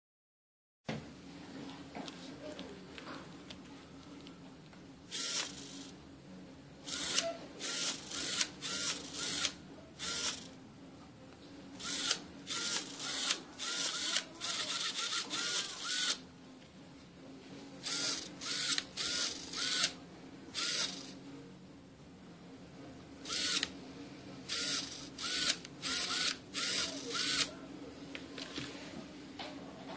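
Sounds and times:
small servo motors whirring: 0:05.1 - 0:06.0, 0:06.9 - 0:10.5, 0:11.8 - 0:16.2, 0:17.8 - 0:20.0, 0:20.6 - 0:21.2, 0:23.3 - 0:23.7, 0:24.5 - 0:27.5.

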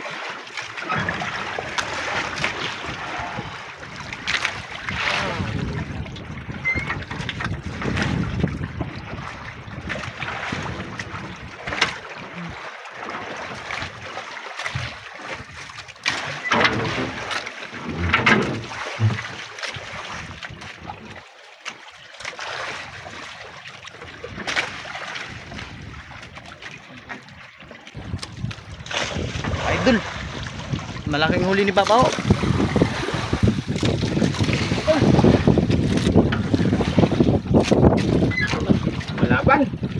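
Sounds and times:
water splashing around boat: 0:00.0 - 0:39.9
wind buffeting microphone: 0:01.0 - 0:11.8, 0:25.1 - 0:26.6, 0:27.3 - 0:39.9
knocks on boat: 0:16.0 - 0:19.5.

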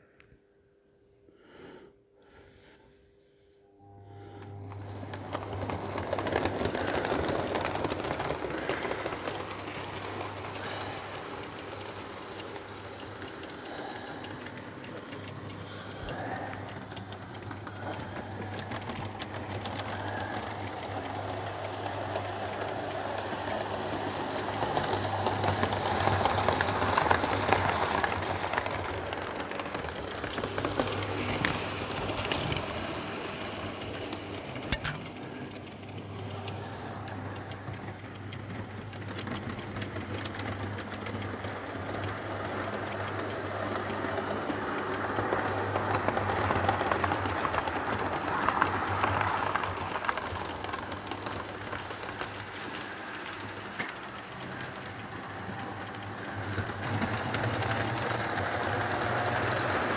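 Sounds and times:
steady low hum: 0:00.0 - 0:47.9
wheels clicking on track: 0:03.9 - 0:59.9.

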